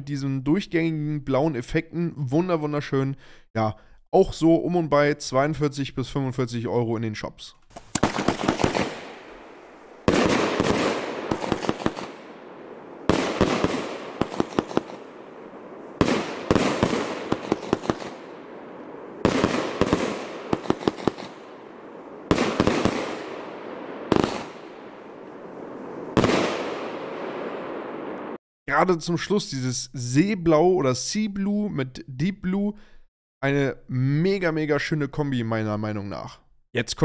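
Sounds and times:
firework bangs with hiss: 7.7s - 12.4s, 13.0s - 18.4s, 19.2s - 21.5s, 22.2s - 24.8s, 25.8s - 28.3s
firework crackling pops: 7.7s - 21.6s, 22.2s - 25.0s, 25.7s - 28.4s.

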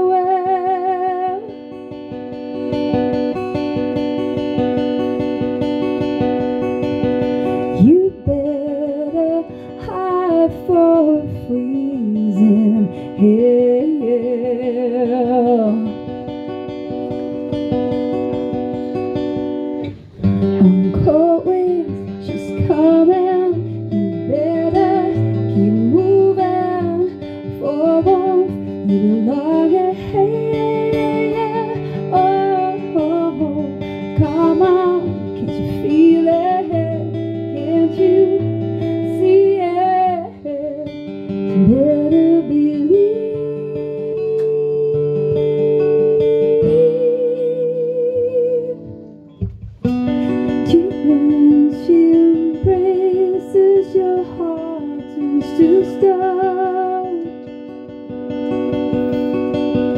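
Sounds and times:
strummed acoustic guitar: 0.0s - 59.9s
woman singing: 0.0s - 59.9s.

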